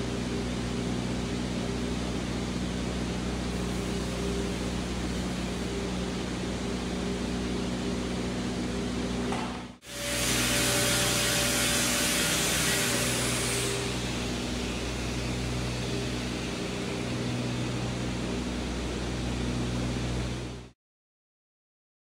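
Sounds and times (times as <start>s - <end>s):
lathe motor humming: 1.4s - 20.6s
loud hiss: 9.8s - 16.4s.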